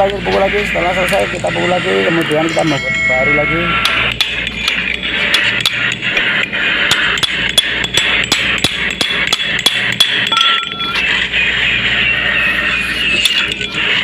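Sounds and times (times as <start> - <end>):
hammer striking steel spike: 6.9 - 11.1.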